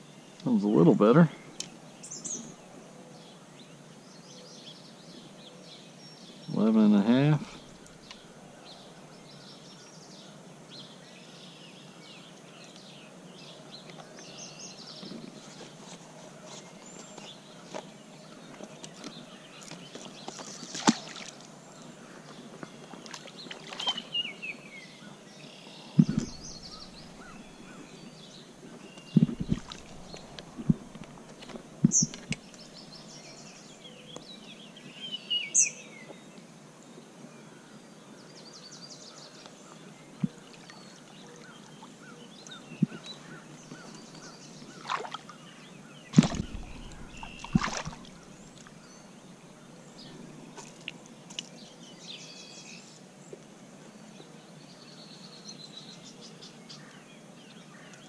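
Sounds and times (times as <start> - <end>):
birds singing: 0.0 - 58.0
sharp knocks and thumps: 26.0 - 27.8, 29.1 - 32.4, 46.2 - 48.7
stream rushing: 29.2 - 32.8, 46.2 - 48.8.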